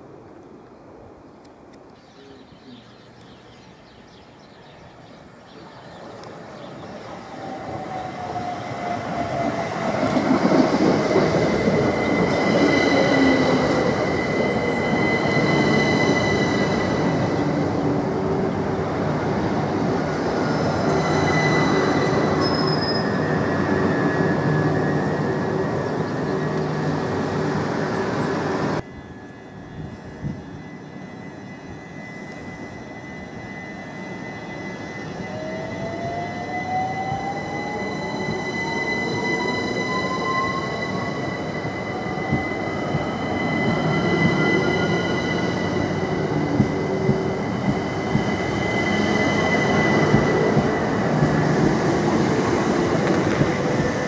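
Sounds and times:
train carriages rumbling past: 0:03.6 - 0:54.0
wheel or brake squeal: 0:20.5 - 0:25.2
electric train motor whine: 0:28.8 - 0:54.0.

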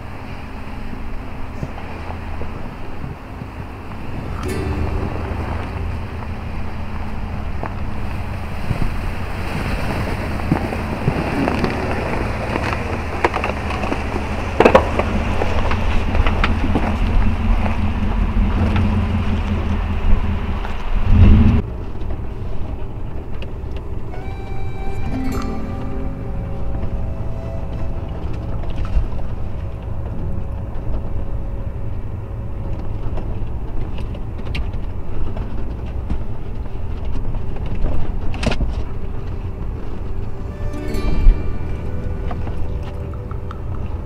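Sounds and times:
truck engine and tyres rumbling: 0:00.0 - 0:44.0
music: 0:01.0 - 0:07.8, 0:23.1 - 0:34.1, 0:37.9 - 0:44.0
rocks knocking and scraping truck: 0:07.0 - 0:23.9.

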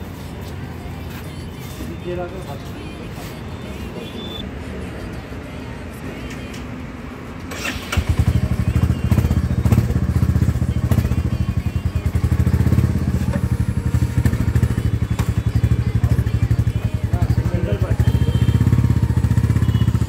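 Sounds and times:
motorcycle engine starting and idling: 0:07.4 - 0:20.0.

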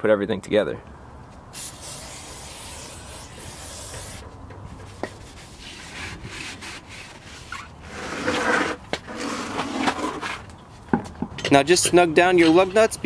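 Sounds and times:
aerosol spray hissing: 0:01.6 - 0:04.2
rag wiping metal: 0:01.6 - 0:04.2.

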